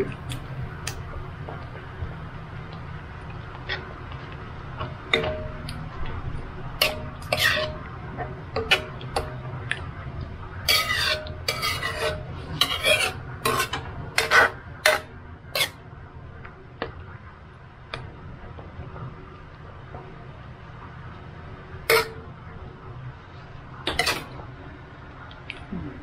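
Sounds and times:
utensil scraping a pan: 6.8 - 7.9, 10.6 - 15.8, 21.9 - 22.2, 23.9 - 24.4.

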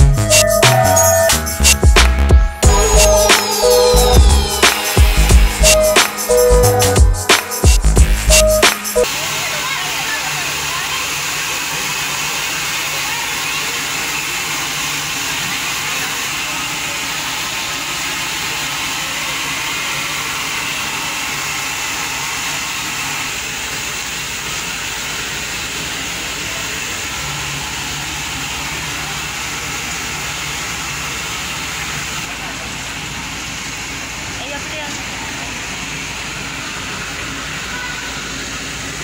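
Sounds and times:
low hum: 1.2 - 8.6
steam locomotive hissing: 2.6 - 39.0.

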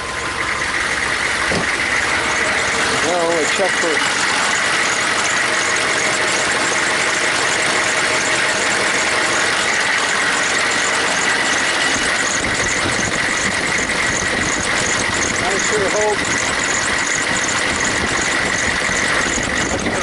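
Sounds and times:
diesel engine idling loudly: 0.0 - 20.0
vacuum pump noise: 0.0 - 20.0.

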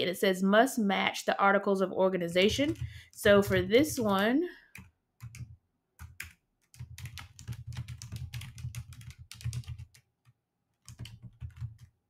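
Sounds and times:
typing on a keyboard: 2.5 - 4.2, 4.8 - 12.0.

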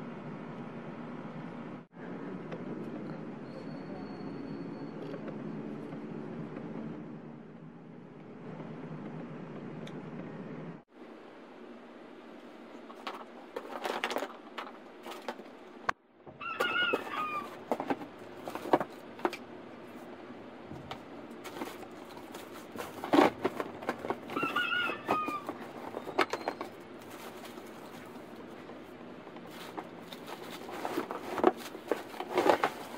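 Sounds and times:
plastic and cardboard rustling: 12.8 - 32.9.

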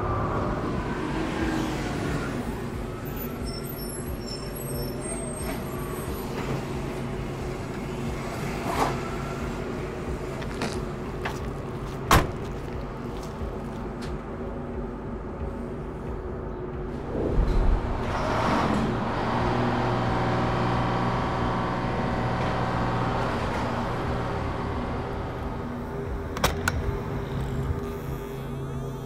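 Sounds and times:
truck engine humming: 5.7 - 29.0.

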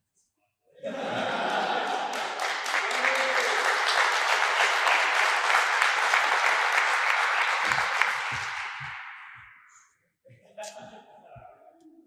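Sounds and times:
audience applauding: 1.1 - 9.6.

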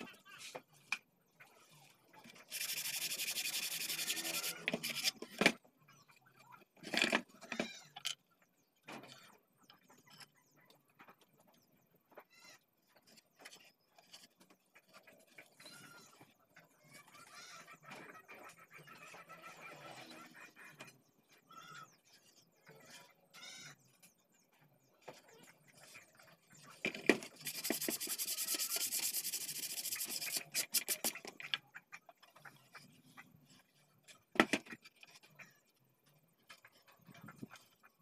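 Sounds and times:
wood strip being sanded by hand: 2.4 - 5.2, 27.3 - 31.3.

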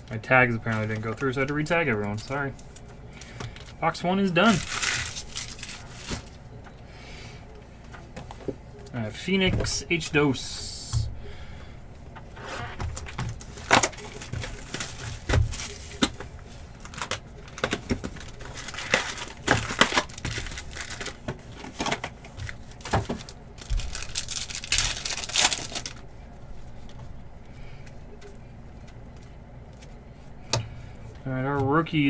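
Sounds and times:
foil wrappers crinkling: 0.2 - 6.4, 12.8 - 26.1
foil pack tearing open: 4.4 - 6.2, 16.8 - 21.2, 21.8 - 26.0.

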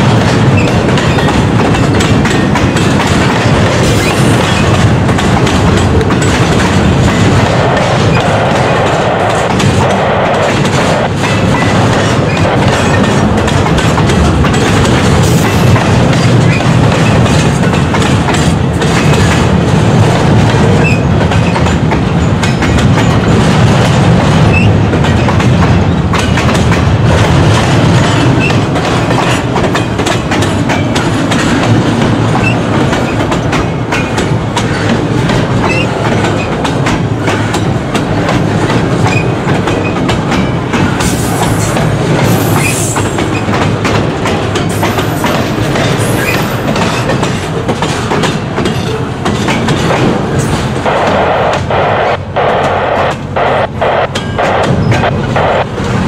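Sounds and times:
train wheels clattering over rail joints: 0.0 - 52.5, 54.1 - 56.0
high wheel squeal: 44.8 - 47.1.

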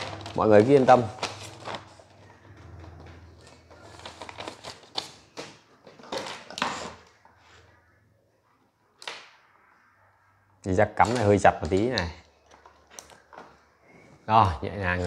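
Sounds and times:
paper rustling and crinkling: 0.0 - 2.6, 3.4 - 7.2.

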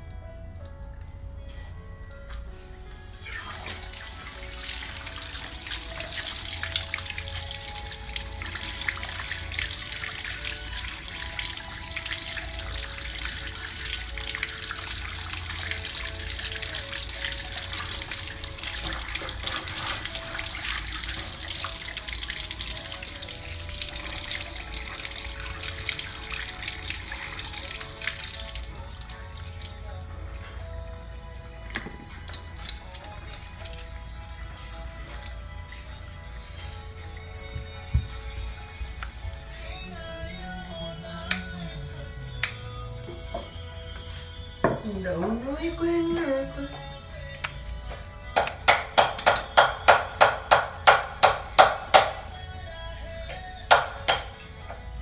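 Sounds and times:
background music: 0.0 - 55.0
running water splashing over hands: 3.3 - 30.2.

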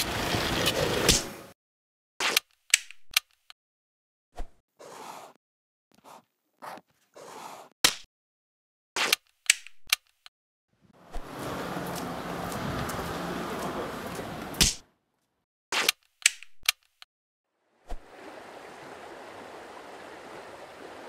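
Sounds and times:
marker pen scratching on paper: 4.8 - 7.8.

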